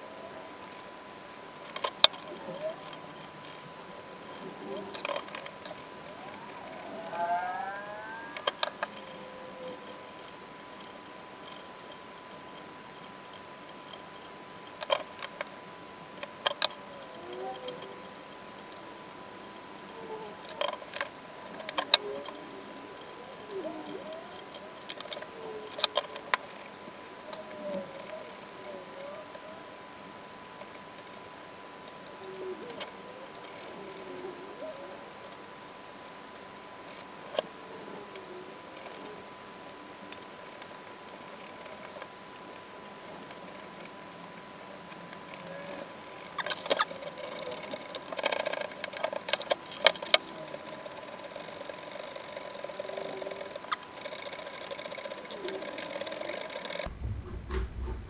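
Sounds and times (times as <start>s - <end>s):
faint steady high tone: 1.7s - 14.4s.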